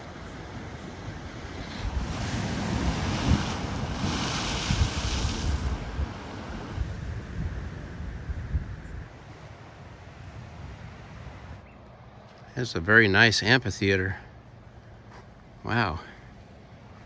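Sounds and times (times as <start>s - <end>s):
waves breaking over rocks: 0.0s - 8.5s
wind buffeting microphone: 0.0s - 11.8s.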